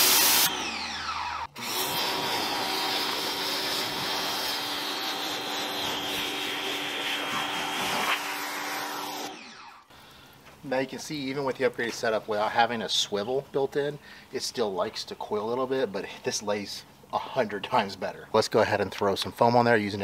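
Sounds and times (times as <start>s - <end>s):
pressure washer motor humming: 0.0s - 9.8s
water jet spraying on car: 1.8s - 9.3s.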